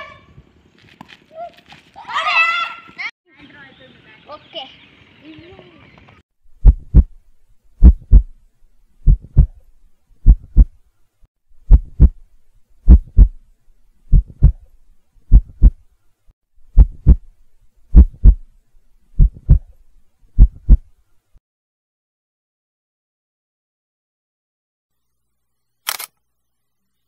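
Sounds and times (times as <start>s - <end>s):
heartbeat thumps: 6.5s - 7.2s, 7.8s - 8.4s, 9.0s - 10.8s, 11.6s - 12.2s, 12.8s - 13.4s, 14.1s - 14.7s, 15.3s - 15.8s, 16.6s - 17.3s, 17.9s - 18.5s, 19.1s - 19.8s, 20.4s - 20.9s.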